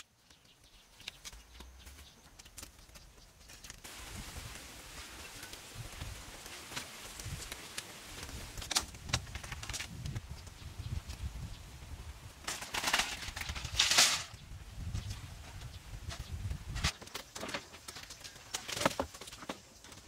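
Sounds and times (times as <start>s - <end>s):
bamboo clacking and knocking: 0.0s - 4.0s, 5.3s - 11.2s, 12.4s - 14.4s, 15.0s - 20.0s
bamboo rustling scrape: 12.4s - 14.4s.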